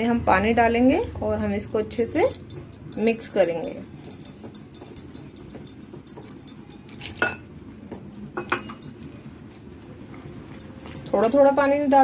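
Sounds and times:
spoon scraping glass bowl: 1.9s - 7.5s.

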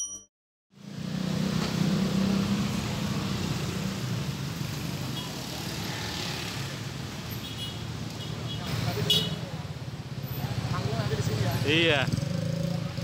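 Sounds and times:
electronic logo chime: 0.0s - 0.3s
road traffic hum: 0.8s - 13.0s.

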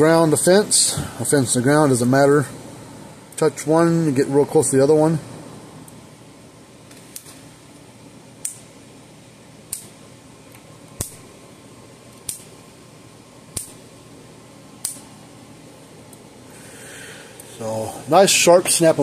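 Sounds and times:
electric fence spark snapping: 6.8s - 8.8s, 9.6s - 11.4s, 12.0s - 12.8s, 13.4s - 14.1s, 14.7s - 15.3s.

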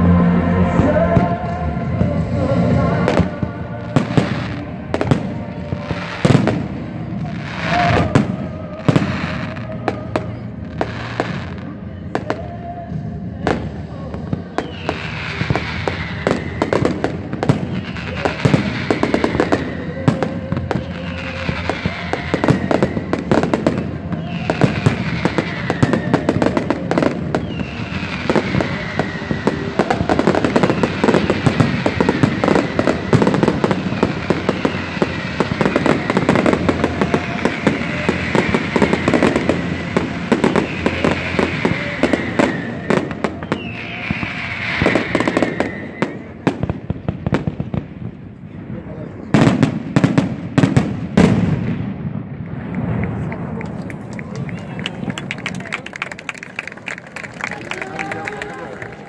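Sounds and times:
music playing: 0.0s - 16.0s
fireworks bangs and crackles: 0.0s - 59.0s
falling whistle-like tone: 34.2s - 46.4s.

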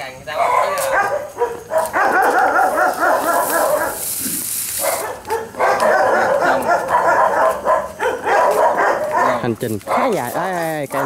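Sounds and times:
hiss: 2.7s - 5.1s.

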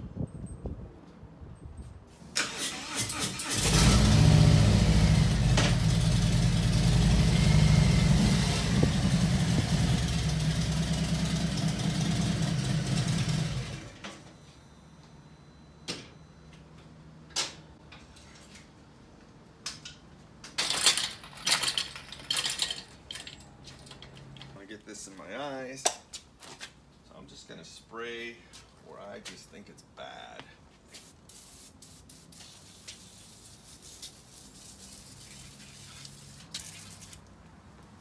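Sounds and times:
motorcycle engine idling: 5.9s - 13.8s.

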